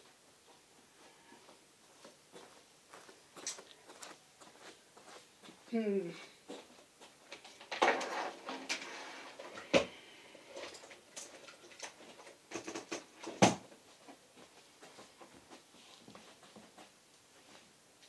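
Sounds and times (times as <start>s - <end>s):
cables rattling on wooden desk: 7.3s - 10.0s, 10.6s - 13.6s.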